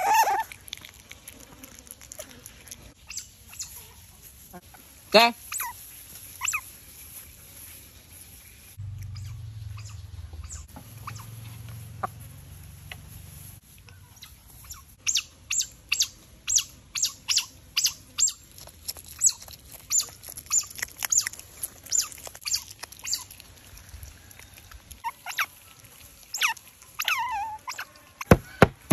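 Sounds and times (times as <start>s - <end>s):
otters chirping: 2.9s - 4.0s, 4.7s - 6.8s, 8.3s - 13.1s, 13.8s - 28.6s.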